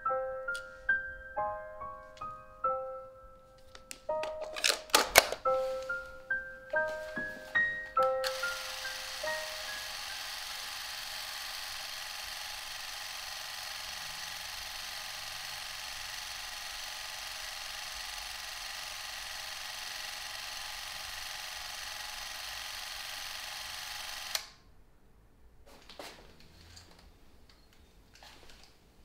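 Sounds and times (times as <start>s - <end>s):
film camera motor whirring: 8.2s - 24.6s.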